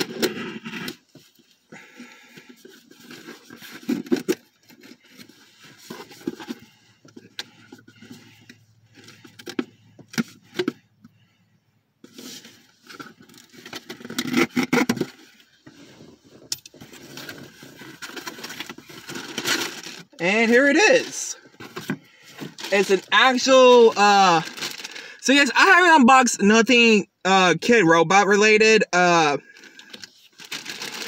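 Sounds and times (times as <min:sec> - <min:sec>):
packaging rustling and crackling: 0:16.7 - 0:25.2, 0:29.6 - 0:31.0.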